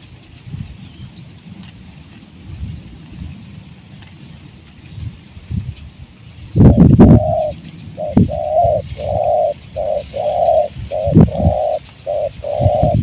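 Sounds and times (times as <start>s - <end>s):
dove cooing: 6.6s - 13.0s.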